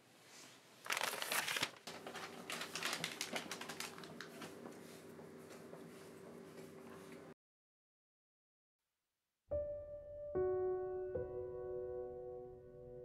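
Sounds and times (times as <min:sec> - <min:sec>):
paper rustling and crinkling: 0:00.8 - 0:05.7.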